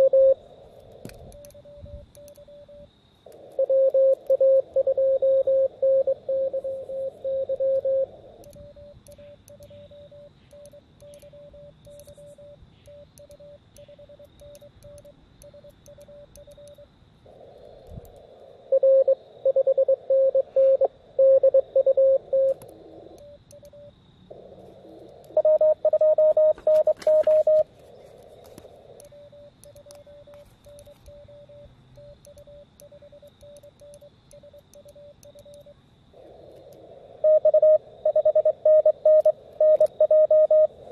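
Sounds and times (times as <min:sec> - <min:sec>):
morse code tones: 0:00.0 - 0:00.4, 0:01.2 - 0:02.9, 0:03.6 - 0:16.9, 0:18.7 - 0:22.6, 0:25.3 - 0:27.7, 0:29.0 - 0:35.7, 0:37.2 - 0:40.8.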